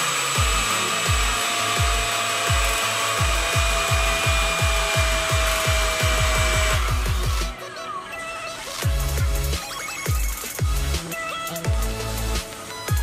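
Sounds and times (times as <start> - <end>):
electric fan whine: 0.0 - 7.6
electronic music with kick drum: 0.0 - 7.7, 8.8 - 13.0.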